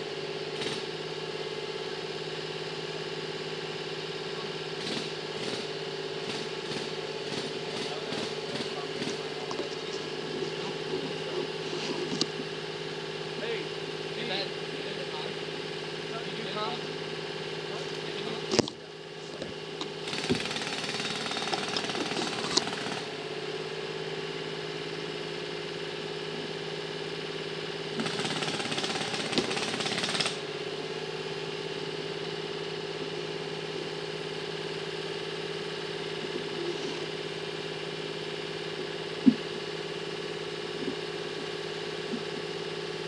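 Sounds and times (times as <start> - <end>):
engine running: 0.0 - 43.0
jackhammer breaking concrete: 0.5 - 1.0, 4.7 - 10.6, 19.9 - 23.2, 27.9 - 30.8.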